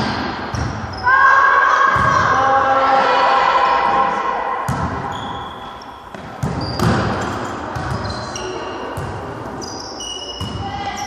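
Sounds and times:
sneakers squeaking on court: 0:04.7 - 0:11.0.

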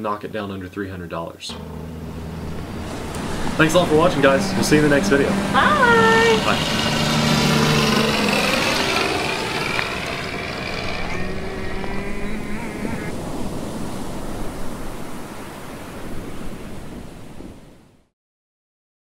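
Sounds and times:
small motors buzzing: 0:01.5 - 0:13.1
ocean waves: 0:01.6 - 0:18.1.

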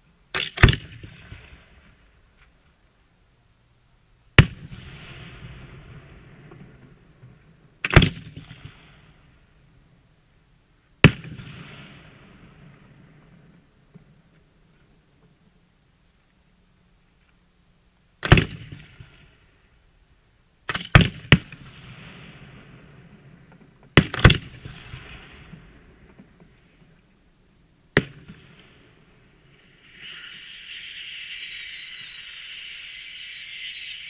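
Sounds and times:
steady high hiss: 0:00.0 - 0:34.0
firework shells bursting: 0:28.0 - 0:34.0.

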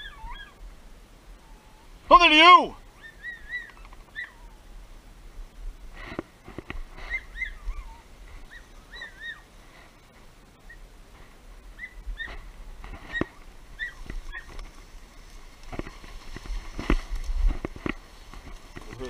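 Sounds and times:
birds chirping: 0:00.0 - 0:00.6, 0:01.4 - 0:04.7, 0:06.9 - 0:10.9, 0:11.7 - 0:16.9.

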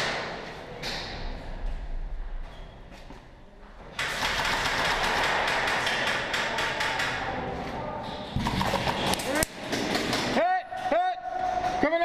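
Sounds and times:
airsoft guns firing rapidly: 0:04.0 - 0:07.3.

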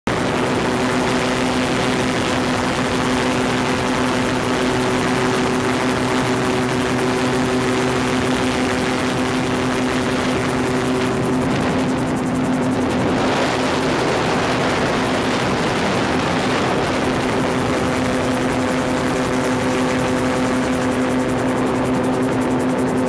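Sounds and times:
aircraft engine droning: 0:00.1 - 0:23.0.

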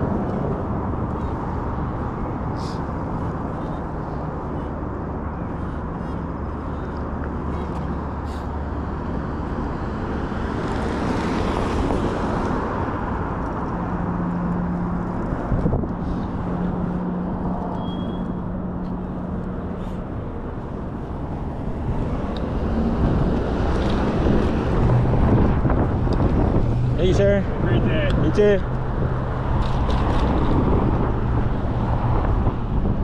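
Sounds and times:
road and tyre noise: 0:00.0 - 0:33.0
wind rushing over microphone: 0:07.3 - 0:17.8, 0:18.4 - 0:33.0.

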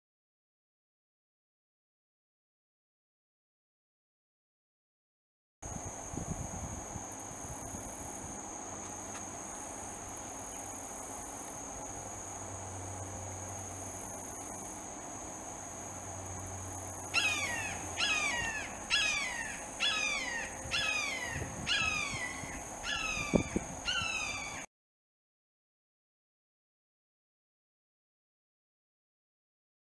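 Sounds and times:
high insect drone: 0:05.6 - 0:24.7
hawk calling: 0:17.1 - 0:24.6.

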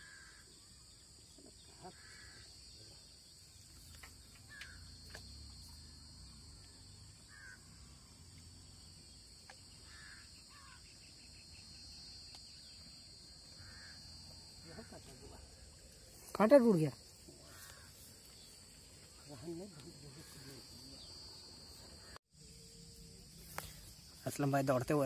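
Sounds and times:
high-pitched insect drone: 0:03.8 - 0:25.0
short bird calls: 0:09.8 - 0:11.0.

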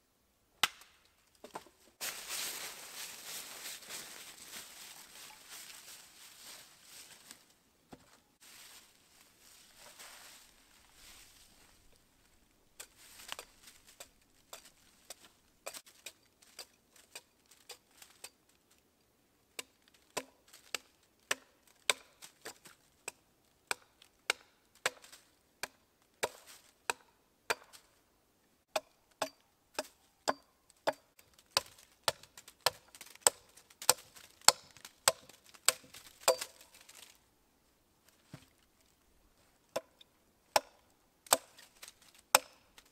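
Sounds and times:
axe chopping wood: 0:00.6 - 0:01.6, 0:19.6 - 0:27.8, 0:28.7 - 0:36.6, 0:39.7 - 0:41.6, 0:42.3 - 0:42.9
soft rustling of wood: 0:01.1 - 0:19.1, 0:30.8 - 0:40.2, 0:41.4 - 0:42.9.

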